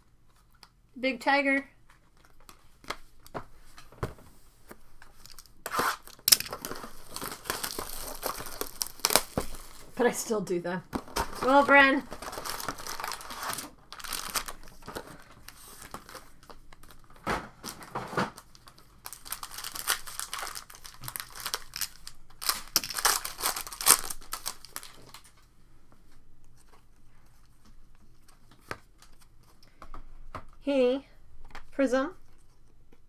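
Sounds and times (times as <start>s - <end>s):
wrappers tearing and crinkling: 5.2s - 10.0s, 11.0s - 25.4s.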